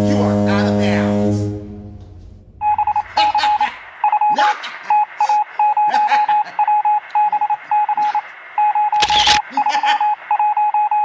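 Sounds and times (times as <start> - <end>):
phone keypad beeps: 2.6 - 9.4, 10.0 - 11.0.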